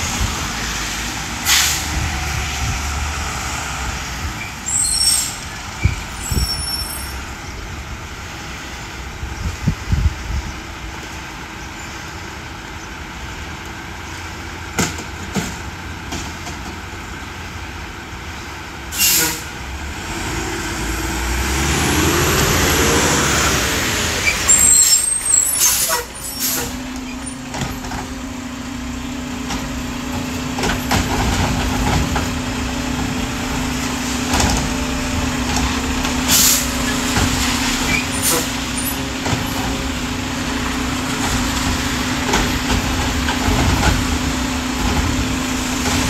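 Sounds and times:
sharp air hiss: 0:01.4 - 0:02.0, 0:18.9 - 0:19.6, 0:24.5 - 0:26.8, 0:36.3 - 0:36.7
garbage truck engine revving: 0:19.4 - 0:46.0.

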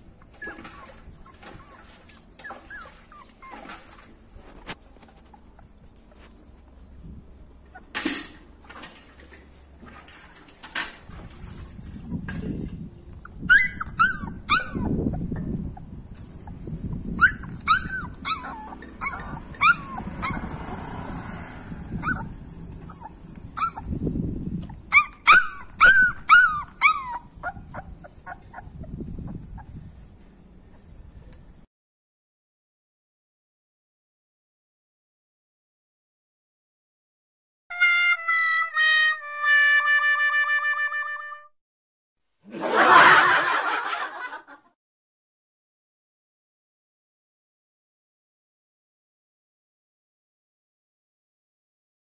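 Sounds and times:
puppy whimpering and yipping: 0:00.1 - 0:06.8, 0:07.5 - 0:08.0, 0:13.1 - 0:20.6, 0:21.9 - 0:30.0.

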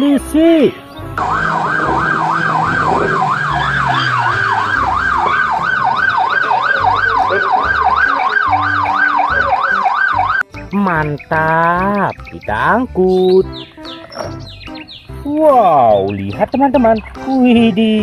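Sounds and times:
police siren yelping: 0:00.8 - 0:10.4.

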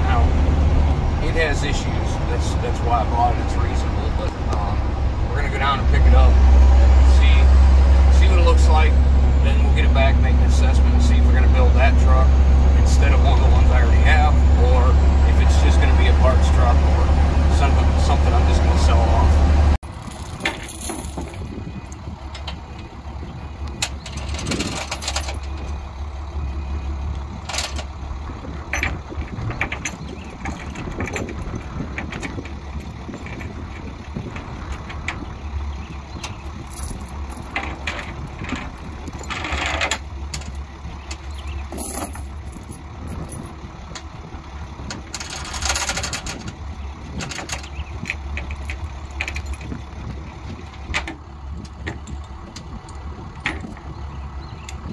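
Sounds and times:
truck engine idling: 0:00.0 - 0:54.9
chains clanking and rattling: 0:19.8 - 0:22.4, 0:24.0 - 0:25.8, 0:28.7 - 0:33.8, 0:36.4 - 0:40.5, 0:41.1 - 0:43.6, 0:45.1 - 0:46.5, 0:48.3 - 0:49.8.

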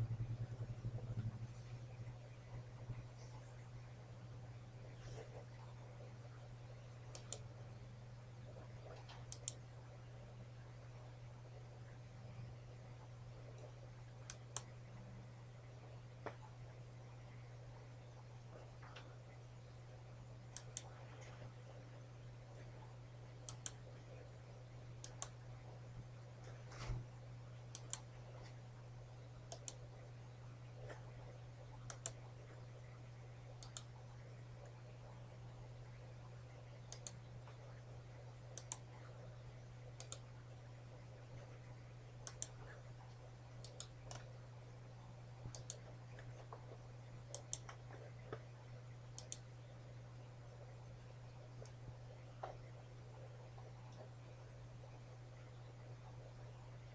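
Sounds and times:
steady low hum: 0:00.0 - 0:56.9
computer mouse clicks: 0:07.0 - 0:07.5, 0:08.6 - 0:09.6, 0:13.5 - 0:14.7, 0:20.5 - 0:21.4, 0:23.4 - 0:24.2, 0:25.0 - 0:25.4, 0:27.7 - 0:28.6, 0:29.4 - 0:29.8, 0:31.8 - 0:32.2, 0:33.6 - 0:34.0, 0:36.8 - 0:37.6, 0:38.5 - 0:39.2, 0:40.0 - 0:40.3, 0:42.2 - 0:44.3, 0:45.5 - 0:48.5, 0:49.1 - 0:49.5.

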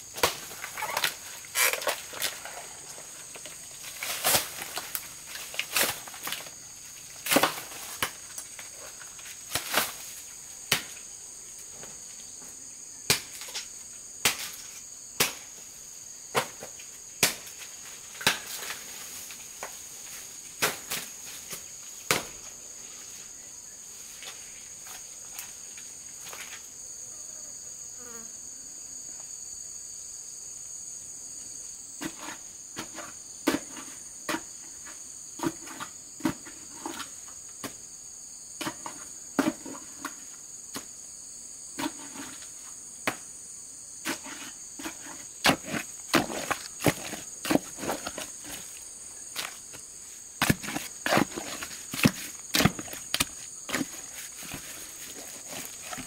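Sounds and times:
high insect drone: 0:00.0 - 0:56.0
hoe chopping into soil: 0:04.0 - 0:06.5, 0:07.2 - 0:08.2, 0:09.5 - 0:10.0, 0:44.0 - 0:49.8, 0:50.4 - 0:56.0.

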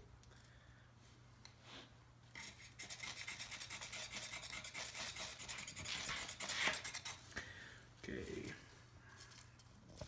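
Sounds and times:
knife scraping ferro rod: 0:02.3 - 0:07.2.

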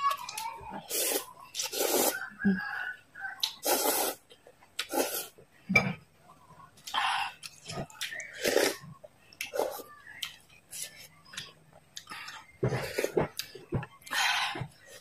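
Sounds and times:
noodles being slurped: 0:00.8 - 0:02.3, 0:03.4 - 0:04.2, 0:04.8 - 0:05.3
wet mouth clicks and chewing: 0:03.4 - 0:03.6.

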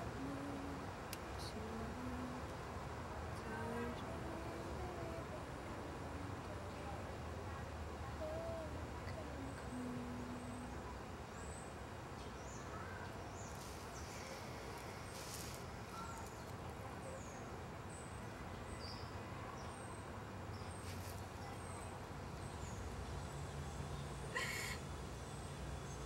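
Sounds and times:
small birds chirping: 0:11.3 - 0:24.8.

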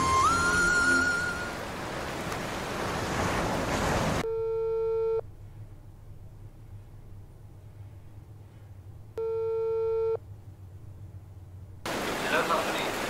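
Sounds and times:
held music tone: 0:00.0 - 0:01.6
rushing wash like surf: 0:00.0 - 0:04.2, 0:11.9 - 0:13.0
steady telephone tone: 0:04.2 - 0:05.2, 0:09.2 - 0:10.2
faint low hum: 0:04.2 - 0:13.0.

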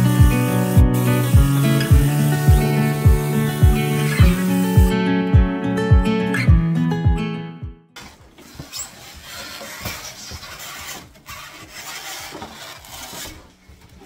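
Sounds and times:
strummed guitar music: 0:00.0 - 0:08.0
plastic panels rubbing and scraping: 0:08.1 - 0:14.0.

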